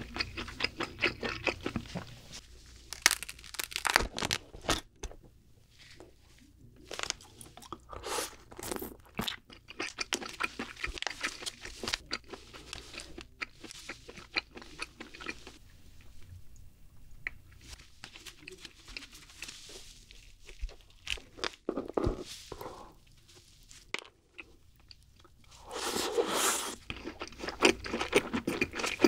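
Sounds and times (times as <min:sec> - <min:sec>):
chewing: 0:00.0 - 0:02.2, 0:07.0 - 0:16.3, 0:24.0 - 0:29.0
crab shell cracking: 0:02.9 - 0:04.4.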